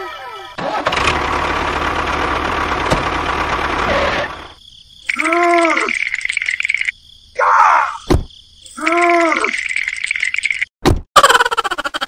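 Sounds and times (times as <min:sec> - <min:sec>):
engine starting and running: 0:00.3 - 0:04.6.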